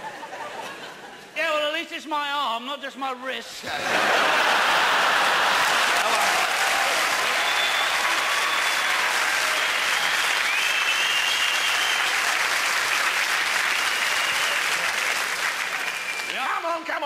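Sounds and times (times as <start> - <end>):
audience applauding: 3.9 - 16.9.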